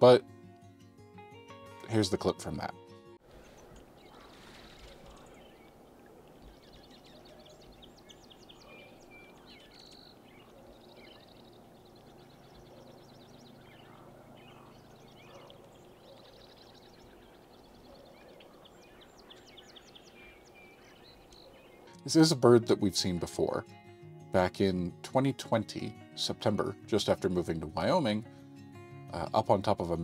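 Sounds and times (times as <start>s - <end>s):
songbird chips and trills: 3.4s - 22.0s.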